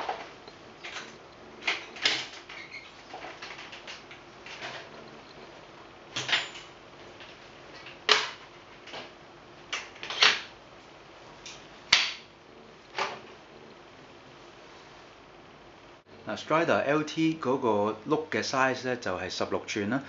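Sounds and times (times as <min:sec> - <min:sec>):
folding bicycle clicks and clunks: 0:00.0 - 0:04.9, 0:06.1 - 0:09.1.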